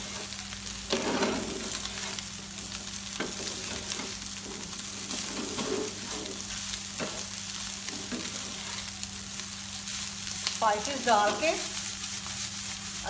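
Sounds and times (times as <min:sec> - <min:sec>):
meat sizzling in a frying pan: 0:00.0 - 0:13.0
metal spatula scraping a pan: 0:00.9 - 0:02.2, 0:03.3 - 0:06.4.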